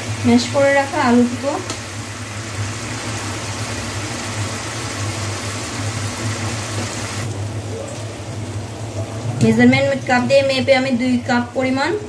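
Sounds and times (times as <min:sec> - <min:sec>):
water hissing in hot pan: 0:00.0 - 0:12.0.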